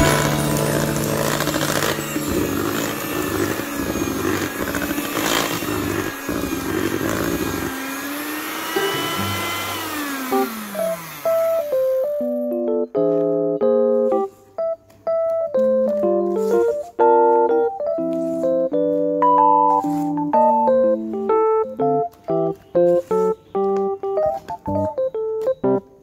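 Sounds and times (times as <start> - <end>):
background music: 0.0 - 3.8
electric hand mixer running: 0.0 - 12.4.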